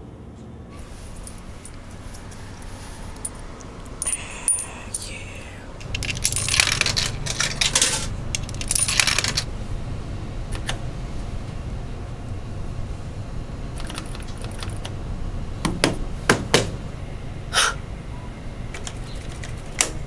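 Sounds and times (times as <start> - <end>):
coins clinking: 0.8 - 9.5
coins rattling through vending machine: 0.8 - 9.5, 13.8 - 14.9, 18.8 - 20.0.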